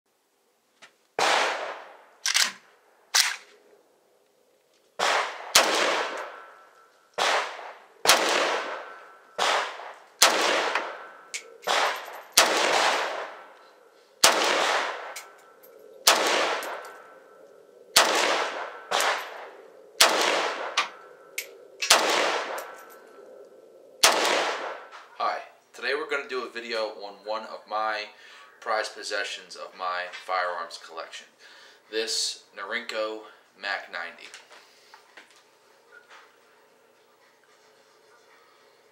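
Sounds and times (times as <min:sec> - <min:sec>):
rifle shots ringing: 0:01.2 - 0:02.6, 0:05.0 - 0:13.6, 0:14.2 - 0:17.1, 0:18.0 - 0:21.0, 0:21.8 - 0:23.1, 0:24.0 - 0:25.0.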